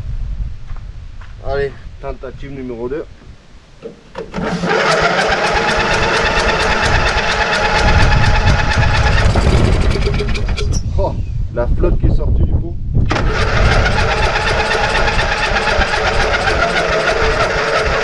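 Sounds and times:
mower engine cranking on starter: 3.8s - 10.8s, 13.1s - 18.0s.

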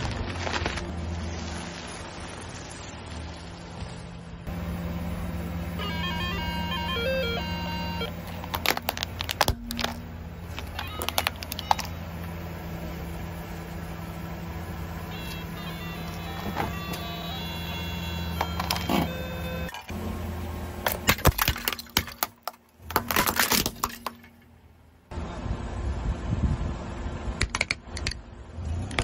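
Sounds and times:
car engine idling: 2.3s - 21.1s
toy guitar beeping tune: 5.8s - 8.1s, 10.8s - 12.0s, 15.1s - 19.7s
plastic cracking and snapping: 8.3s - 10.0s.

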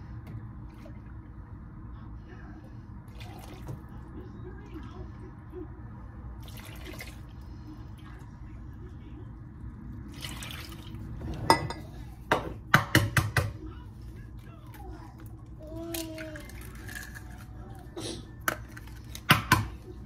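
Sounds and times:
milk pouring and splashing: 3.1s - 4.0s, 6.4s - 7.7s, 10.0s - 11.2s.

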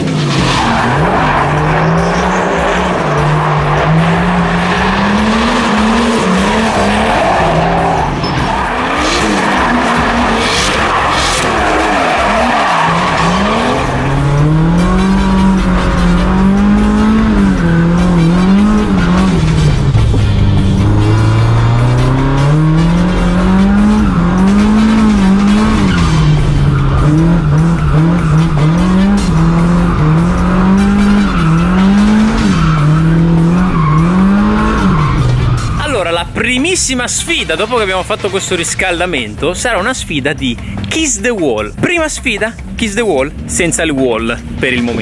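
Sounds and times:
tyres squealing on asphalt: 0.0s - 19.9s, 20.8s - 39.8s
car engine at high revs: 0.0s - 35.8s.

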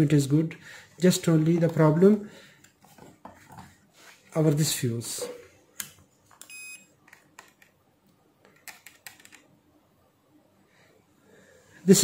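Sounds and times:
multimeter beep: 6.4s - 6.9s.

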